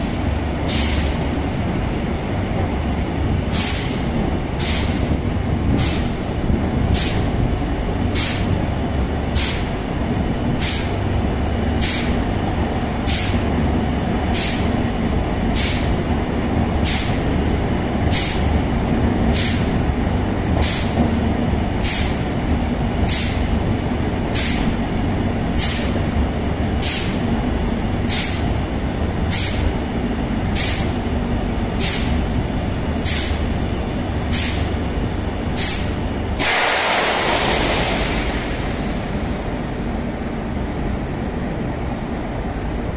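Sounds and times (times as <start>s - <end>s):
train rumbling through tunnel: 0.0s - 42.9s
loud hiss: 35.6s - 39.6s
short high hiss: 36.4s - 38.6s.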